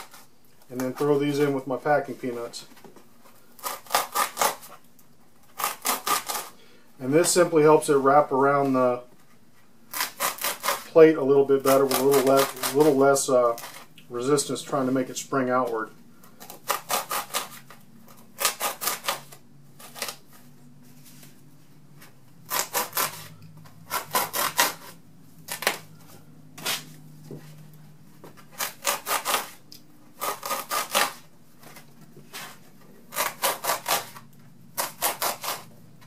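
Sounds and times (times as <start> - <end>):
knife sawing foam: 3.6 - 4.7, 5.6 - 8.7, 9.9 - 15.2, 16.4 - 17.6, 18.4 - 20.2, 22.5 - 25.8, 28.5 - 29.6, 30.2 - 31.2, 32.3 - 34.2, 34.8 - 35.7.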